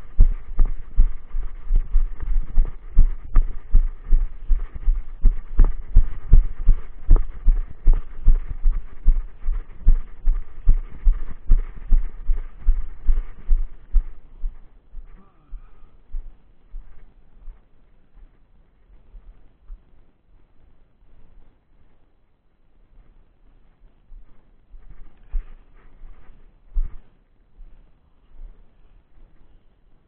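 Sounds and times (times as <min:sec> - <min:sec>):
footsteps on dirt trail: 0:00.0 - 0:15.2, 0:24.1 - 0:27.8.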